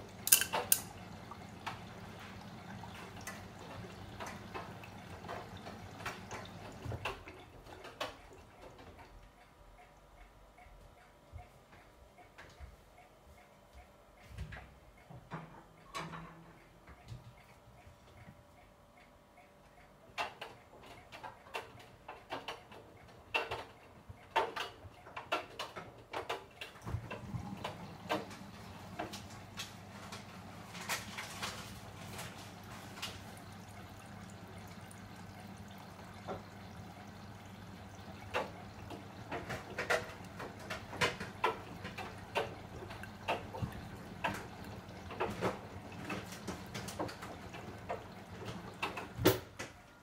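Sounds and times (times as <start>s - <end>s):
laundry tumbling in washing machine: 0.0s - 9.2s, 21.0s - 50.0s
washing machine humming: 0.0s - 50.0s.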